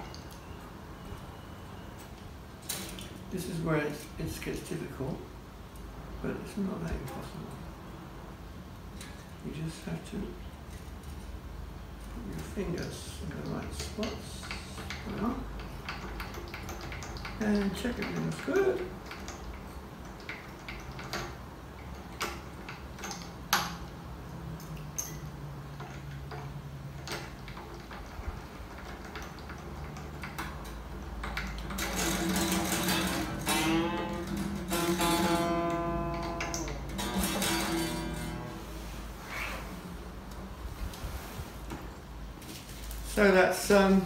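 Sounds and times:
clicks handling guitar string: 30.2s - 38.6s
guitar strings plucked and ringing: 31.8s - 38.7s.

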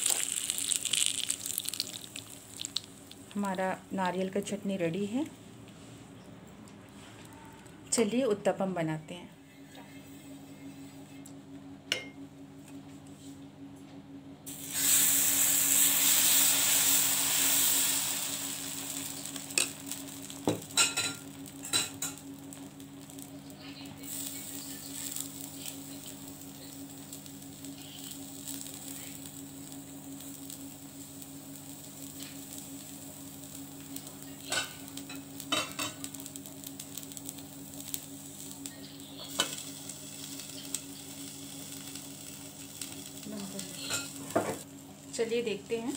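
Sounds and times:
batter sizzling on hot pan: 0.0s - 3.6s, 14.5s - 45.9s.

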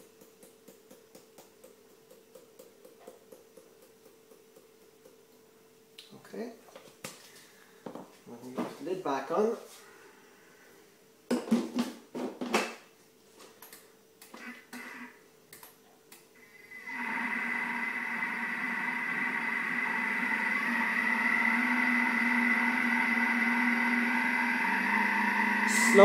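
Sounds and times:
mixer motor whining: 16.4s - 26.0s.

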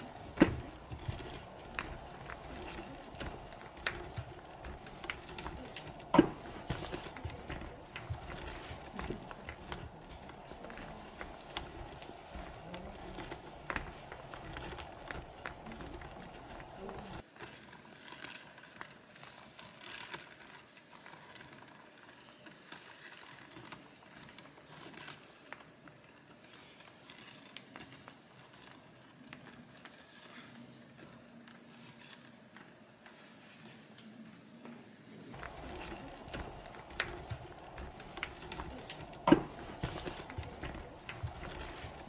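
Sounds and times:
light clicks and taps of braiding: 0.0s - 17.2s, 35.4s - 42.0s.

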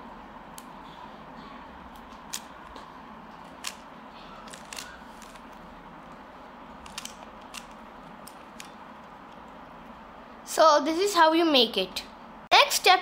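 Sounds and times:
puzzle cube clicking: 3.6s - 3.8s, 4.4s - 5.6s, 6.8s - 8.8s.

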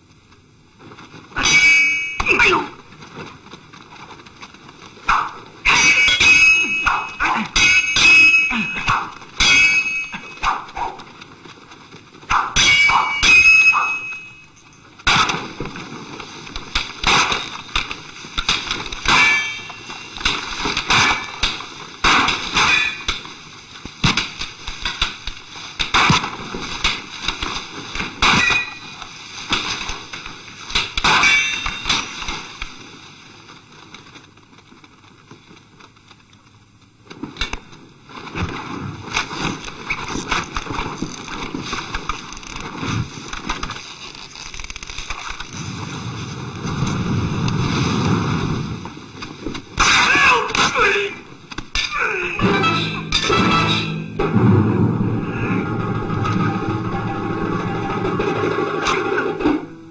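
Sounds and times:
metallic clangs and strikes: 1.4s - 2.4s, 5.1s - 10.8s, 12.3s - 15.3s, 18.4s - 23.3s, 28.2s - 29.0s, 30.8s - 32.2s, 51.7s - 59.9s.

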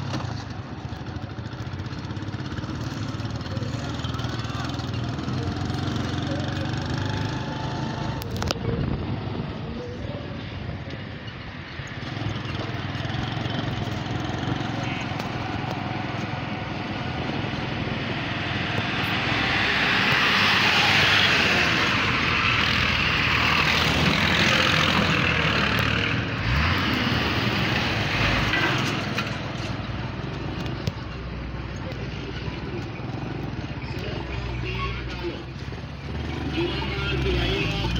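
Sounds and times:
vehicle engine running: 0.0s - 37.9s
truck passing close by: 12.0s - 34.3s.

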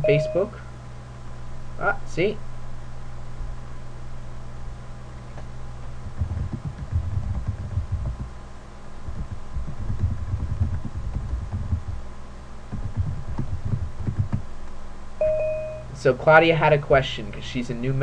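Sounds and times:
electrical hum: 0.0s - 18.0s
keyboard typing thumps: 6.0s - 8.4s, 9.1s - 12.0s, 12.7s - 14.5s.

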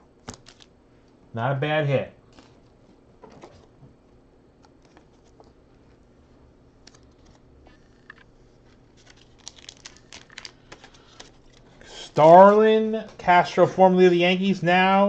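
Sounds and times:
cards and wrappers rustling: 0.2s - 0.7s, 4.6s - 6.0s, 6.9s - 7.5s, 8.1s - 13.6s.

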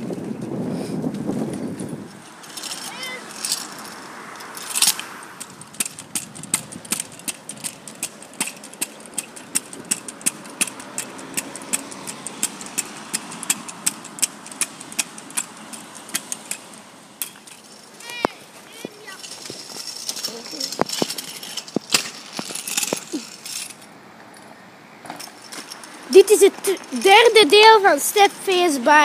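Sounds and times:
scooter wheels rumbling on pavement: 0.0s - 29.0s
sharp clicks and rattles: 1.1s - 23.9s.

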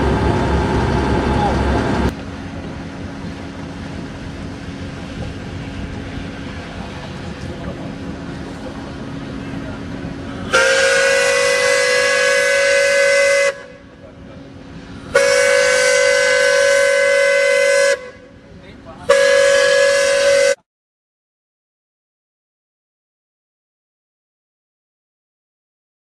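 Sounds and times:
steam whistle blasts: 10.5s - 13.8s, 15.1s - 18.4s, 19.1s - 20.6s.

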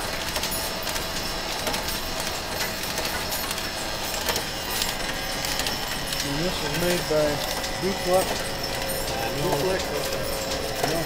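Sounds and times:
faint machine whine: 0.0s - 11.0s
pulleys and belts rattling: 0.0s - 11.0s.

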